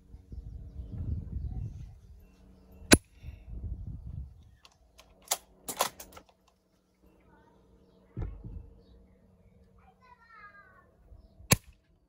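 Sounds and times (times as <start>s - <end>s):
brief low rumble: 8.1s - 8.8s
airsoft rifle shot: 11.5s - 11.8s.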